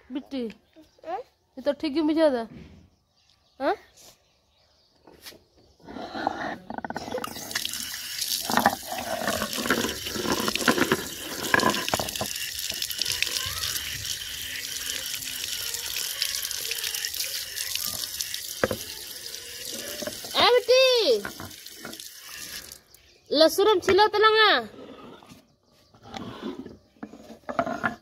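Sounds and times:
water pouring onto stone: 7.3s - 23.0s.

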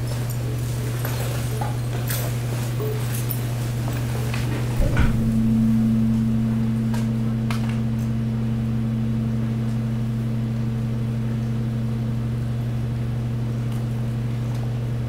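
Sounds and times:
compaction press humming: 4.4s - 15.0s.

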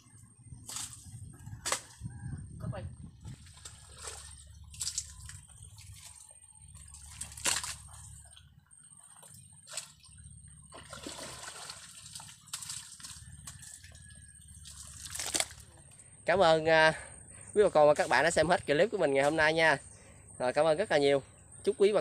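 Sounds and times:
mud and water splashing: 0.6s - 2.0s, 3.3s - 16.0s.

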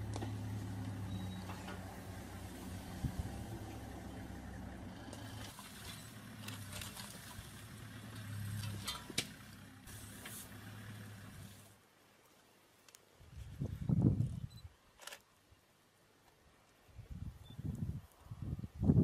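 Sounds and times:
vehicle engine idling: 0.0s - 11.8s.

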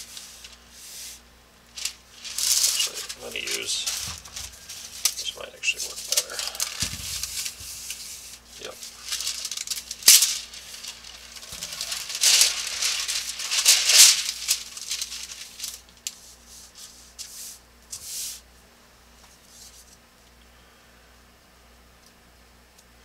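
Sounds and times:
tracing paper rustling: 0.0s - 18.4s.

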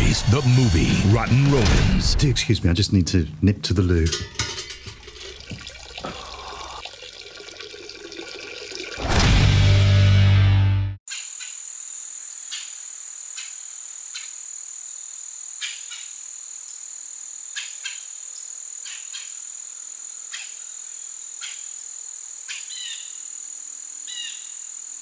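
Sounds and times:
crickets trilling: 5.2s - 8.8s, 11.1s - 25.0s.

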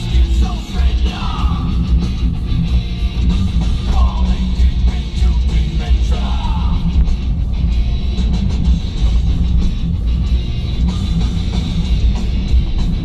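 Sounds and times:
person singing: 0.0s - 1.8s, 3.9s - 6.9s
heavy bass beat: 0.0s - 13.0s
loud rock music: 0.0s - 13.0s.

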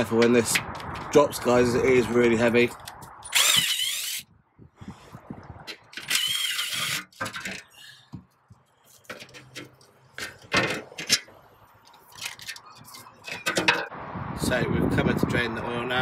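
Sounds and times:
impact wrench whirring: 3.3s - 4.2s
knocks and clatters: 7.1s - 11.3s, 11.9s - 13.9s.

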